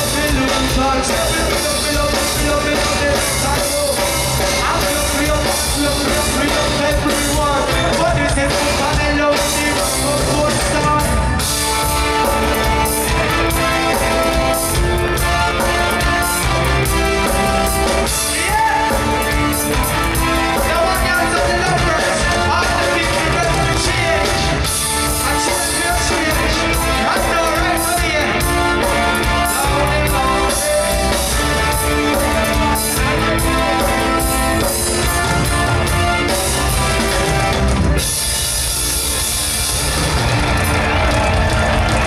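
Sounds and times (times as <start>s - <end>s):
singer's voice: 0.0s - 12.3s, 17.8s - 37.5s
crowd: 0.0s - 42.0s
live reggae band playing: 0.0s - 42.0s.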